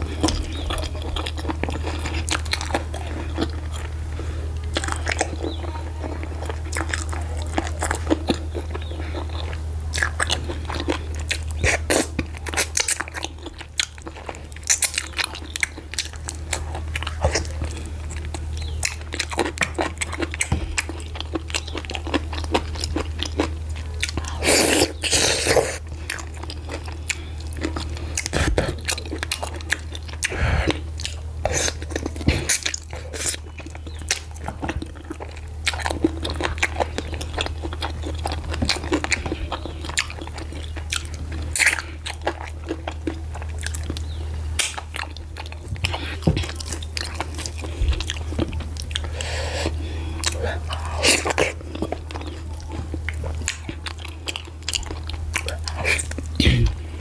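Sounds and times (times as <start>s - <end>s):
low steady hum: 0.0s - 57.0s
wet chewing and biting: 0.0s - 57.0s
mouth clicks: 43.6s - 45.2s.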